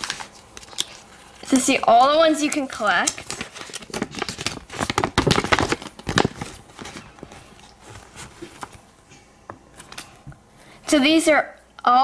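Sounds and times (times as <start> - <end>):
paper rustling: 0.0 - 8.9
plastic bag crinkling: 0.0 - 8.9.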